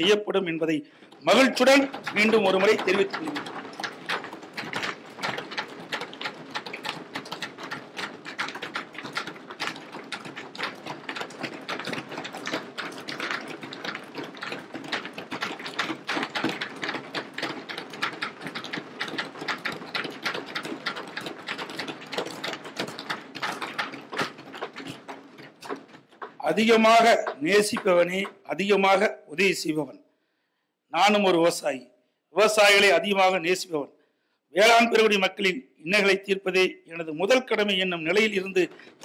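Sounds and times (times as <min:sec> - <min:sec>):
people thumping desks in applause: 0:01.0 - 0:28.5, 0:37.5 - 0:39.0.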